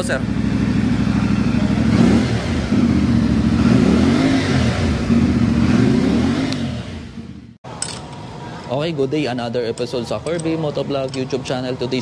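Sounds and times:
motorcycle engine revving: 0.0s - 7.6s.

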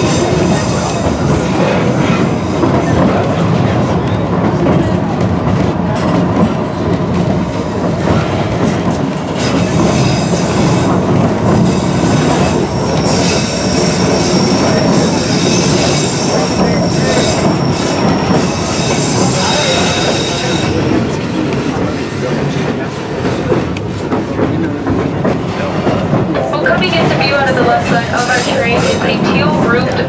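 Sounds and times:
wheels squealing on rails: 0.0s - 4.2s, 7.2s - 23.5s
train rumbling on track: 0.0s - 30.0s.

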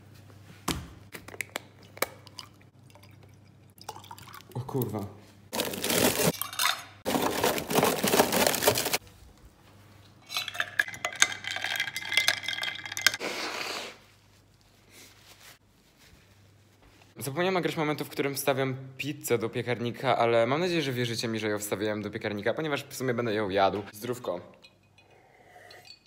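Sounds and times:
plastic bag rustling: 5.5s - 6.4s, 7.0s - 9.1s
spoon stirring ice in glass: 10.2s - 13.2s.

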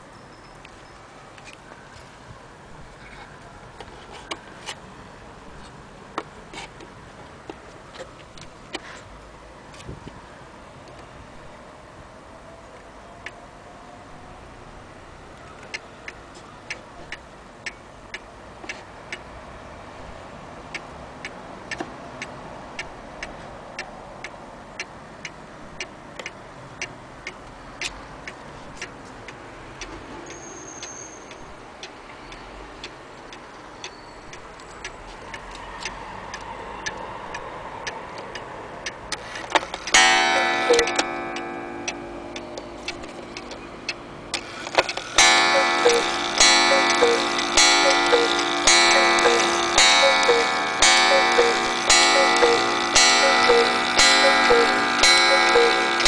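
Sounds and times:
clock ticking: 15.6s - 19.3s, 20.0s - 56.0s
cuckoo clock call: 39.9s - 44.0s, 44.9s - 56.0s.

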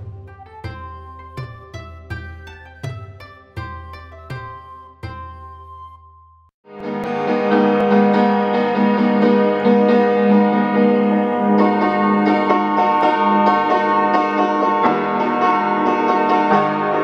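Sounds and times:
piano music: 0.0s - 17.0s.

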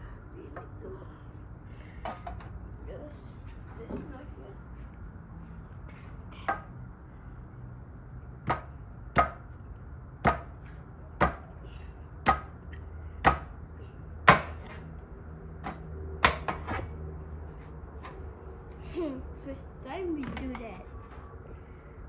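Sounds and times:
cleaver chopping on steel tray: 13.3s - 13.5s, 14.3s - 14.6s.

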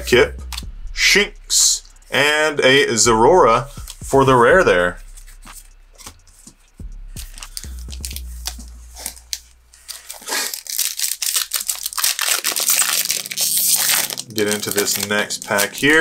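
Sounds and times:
cards clicking: 7.2s - 16.0s
foil wrapper crinkling and tearing: 7.2s - 16.0s.

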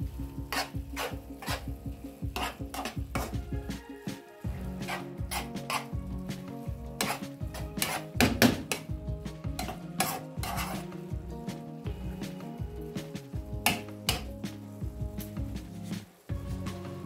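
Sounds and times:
filling sizzling: 0.0s - 17.0s
spoon scraping frying pan: 0.4s - 3.4s, 4.5s - 6.0s, 6.6s - 11.0s.

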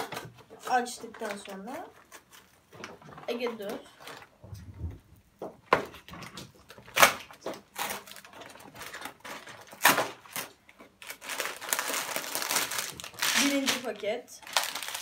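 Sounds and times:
plastic bags crinkling: 6.2s - 15.0s.

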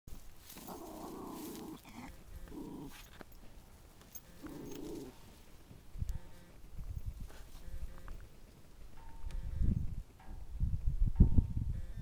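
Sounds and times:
small dog growling: 0.6s - 3.2s, 4.3s - 5.2s.

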